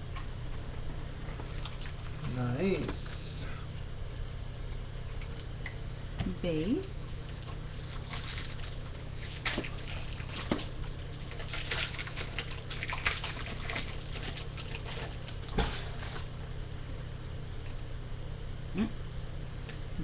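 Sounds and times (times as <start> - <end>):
foil wrapper crinkling and tearing: 7.2 - 16.3.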